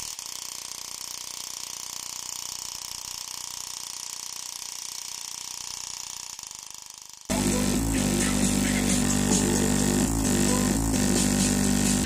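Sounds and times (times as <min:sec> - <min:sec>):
speaker driver fluttering rattle: 0:00.0 - 0:07.3.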